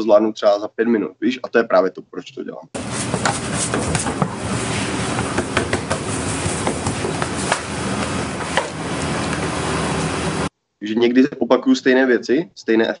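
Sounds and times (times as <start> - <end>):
dough slapping on steel counter: 2.8 - 9.0
kitchen hum: 2.8 - 10.5.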